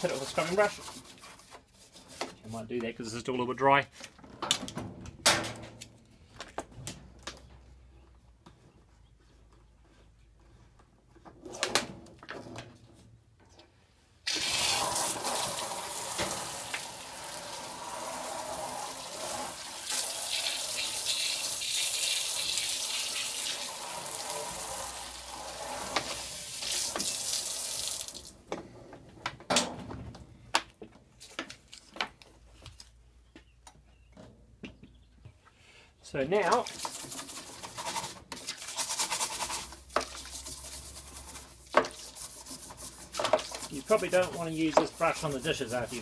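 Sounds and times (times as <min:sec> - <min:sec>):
water rushing from a hose: 0:14.3 - 0:28.3, 0:43.2 - 0:46.0.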